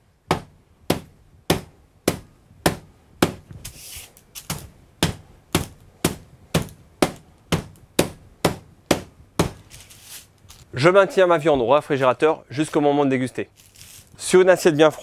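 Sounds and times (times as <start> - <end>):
brief brushing sound: 3.6 - 4.2, 9.7 - 10.3.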